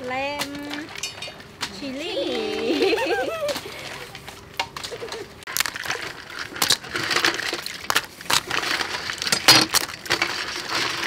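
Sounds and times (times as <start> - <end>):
crab shells clattering in metal colander: 5.5 - 11.0.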